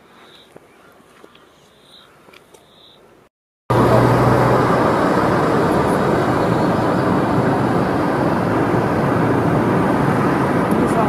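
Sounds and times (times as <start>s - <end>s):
road and wind noise: 0.0s - 11.0s
low hum: 3.7s - 11.0s.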